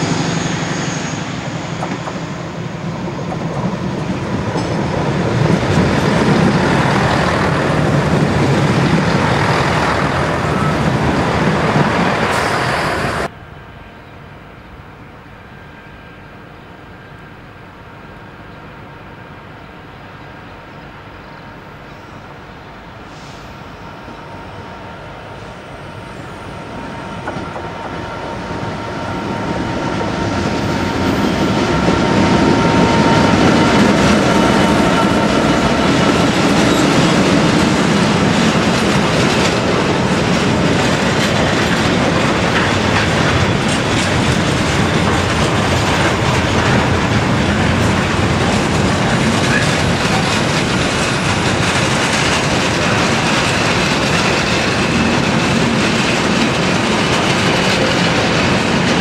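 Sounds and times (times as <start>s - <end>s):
train passing: 0.0s - 59.0s
wheels clattering over rail joints: 33.7s - 59.0s.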